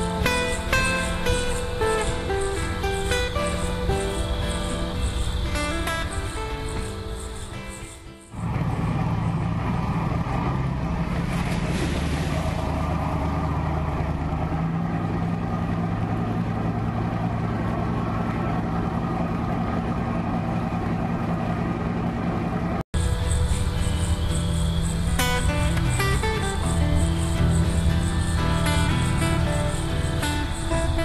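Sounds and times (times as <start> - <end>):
motorboat engine hum: 0.0 - 31.0
water rushing: 8.3 - 31.0.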